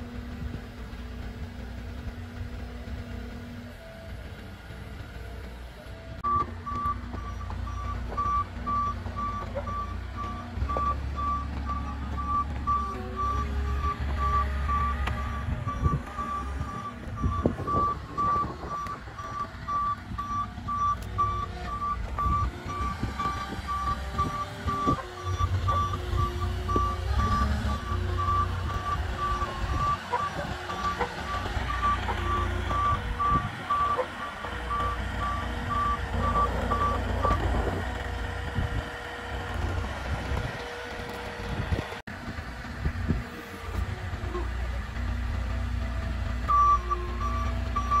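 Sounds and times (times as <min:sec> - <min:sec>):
forklift engine rumble: 0:00.0 - 0:48.0
back-up alarm beeping: 0:06.2 - 0:37.4, 0:46.5 - 0:48.0.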